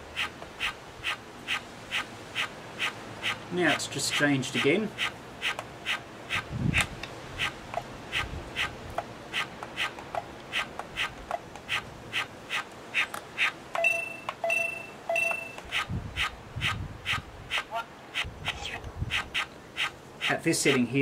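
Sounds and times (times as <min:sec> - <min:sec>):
toy speaker clicking chirps: 0:09.4 - 0:18.3
short electronic beeps: 0:13.8 - 0:15.6.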